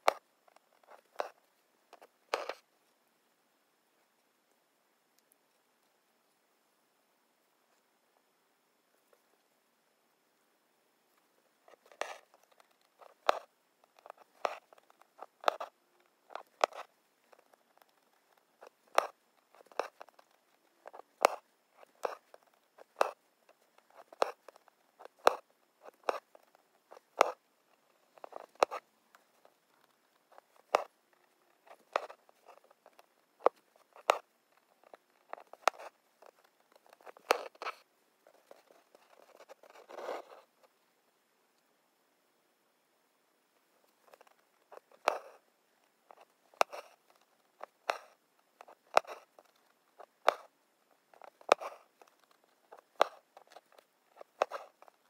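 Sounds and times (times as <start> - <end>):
needle pricking through fabric: 51.1 - 55.0.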